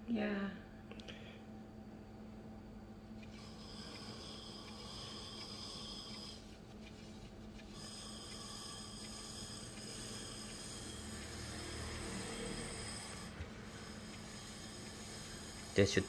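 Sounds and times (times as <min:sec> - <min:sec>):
potter's wheel humming: 0:02.8 - 0:16.0
tool scraping clay: 0:03.2 - 0:16.0.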